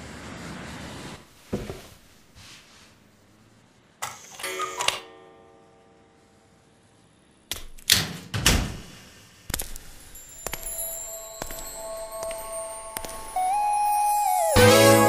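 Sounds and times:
music with ringing notes: 0:10.2 - 0:15.0.

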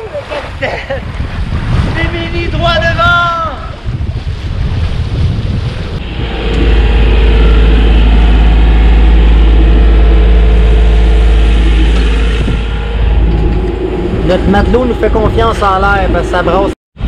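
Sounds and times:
wind and water rushing: 0:00.0 - 0:17.0
diesel engine running: 0:06.0 - 0:16.7.

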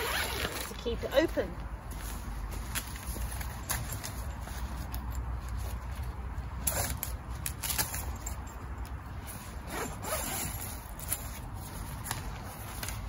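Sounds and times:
zip being pulled open: 0:00.0 - 0:00.8, 0:06.6 - 0:07.1, 0:09.5 - 0:11.4.

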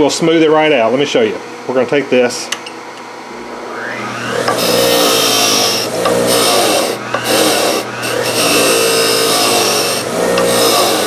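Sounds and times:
grinder motor hum: 0:03.3 - 0:11.0
wire wheel rasping against metal: 0:04.4 - 0:11.0.

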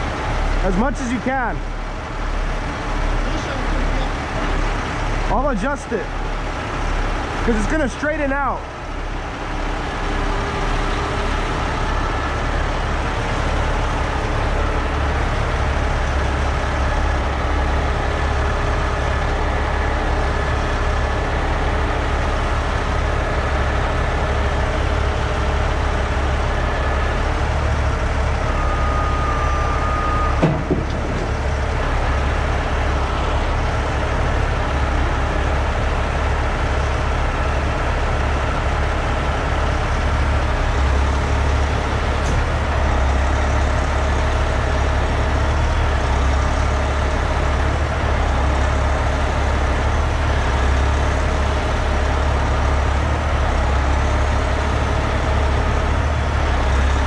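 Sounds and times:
diesel engine running: 0:00.0 - 0:57.0
short thump: 0:30.4 - 0:31.4.

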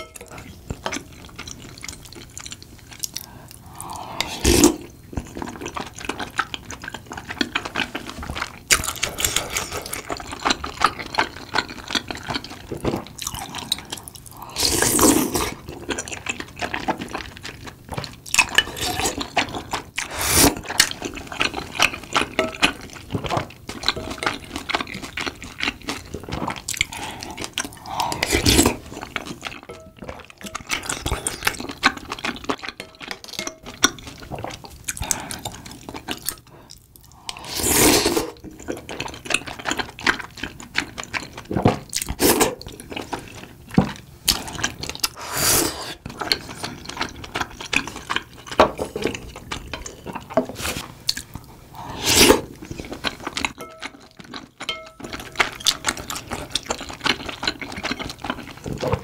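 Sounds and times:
chewing: 0:00.2 - 0:37.6, 0:38.3 - 0:45.3, 0:46.0 - 0:59.0
slurping broth: 0:03.2 - 0:04.9, 0:13.4 - 0:15.6, 0:20.0 - 0:20.8, 0:26.8 - 0:29.0, 0:37.1 - 0:38.4, 0:42.0 - 0:43.3, 0:44.3 - 0:46.6, 0:51.7 - 0:53.0.

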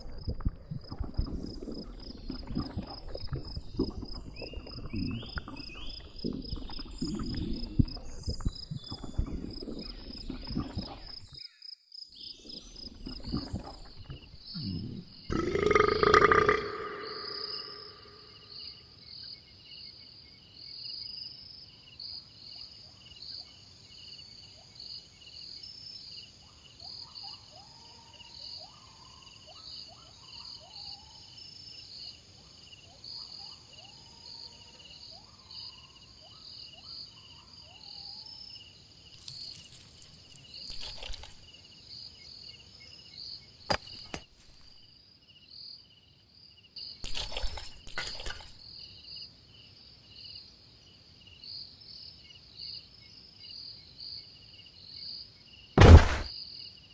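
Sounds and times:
crickets chirping: 0:00.0 - 0:22.6, 0:27.5 - 0:55.7
low animal calls: 0:12.6 - 0:18.4
noisy sound effects: 0:55.8 - 0:56.3.

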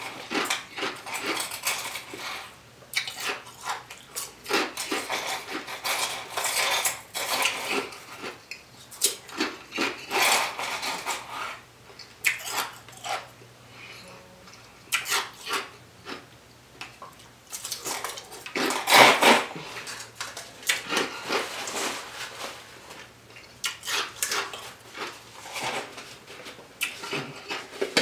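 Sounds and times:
wet chewing and lip-smacking: 0:02.9 - 0:04.3, 0:11.9 - 0:13.2, 0:23.3 - 0:25.1.

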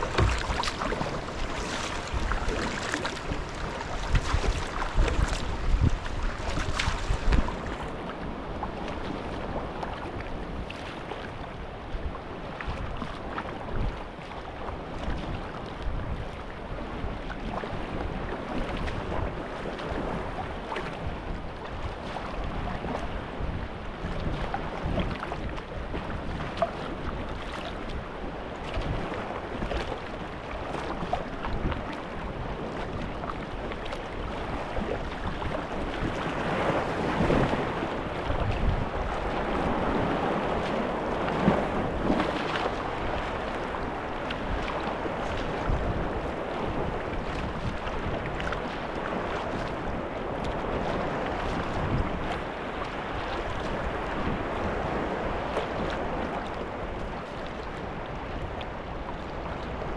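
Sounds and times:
waves washing against rocks: 0:00.0 - 0:08.0
paddle blades dipping: 0:00.0 - 0:10.1, 0:28.7 - 0:59.9
water sloshing against kayak hull: 0:00.0 - 0:16.5, 0:24.0 - 0:59.9
wind buffeting microphone: 0:00.0 - 0:59.9.

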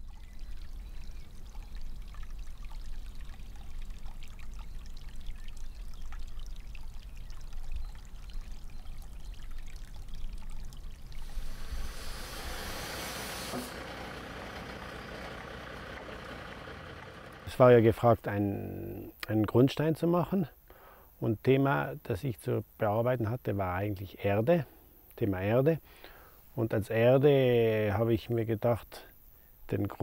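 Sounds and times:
rushing trickling noise: 0:09.8 - 0:14.9
low rumble: 0:11.0 - 0:14.4
bright hiss: 0:11.2 - 0:14.9.

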